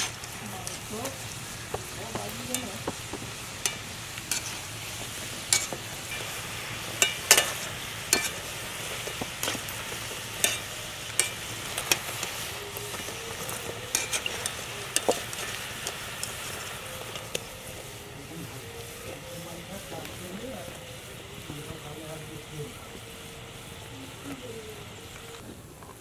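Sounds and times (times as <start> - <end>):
food sizzling in hot oil: 0.0 - 25.4
skimmer clinking against pan: 5.5 - 16.4.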